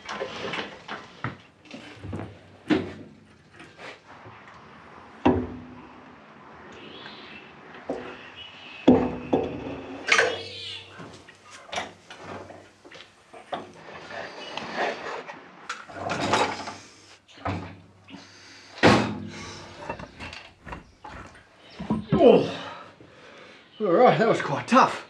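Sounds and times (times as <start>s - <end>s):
metal clunks and knocks: 5.2s - 5.9s, 8.8s - 10.7s, 18.8s - 22.3s.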